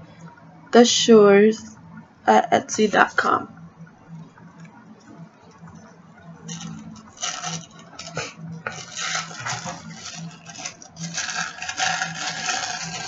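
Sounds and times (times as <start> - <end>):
bubble wrap crinkling and rustling: 6.5 - 13.0.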